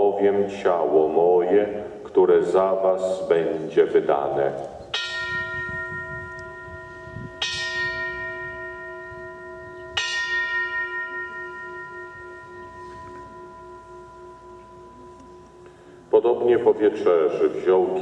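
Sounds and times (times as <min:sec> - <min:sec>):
altar bell ringing: 0:04.9 - 0:16.8.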